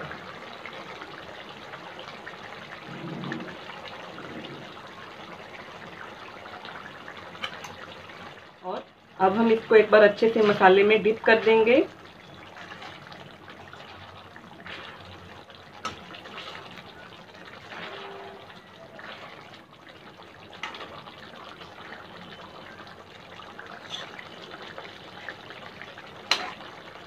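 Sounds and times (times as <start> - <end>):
liquid sloshing and splashing: 2.8 - 4.8, 12.2 - 22.4.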